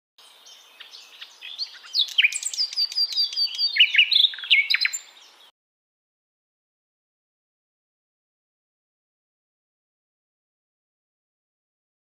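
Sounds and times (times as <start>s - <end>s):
songbird singing: 0.2s - 5.5s.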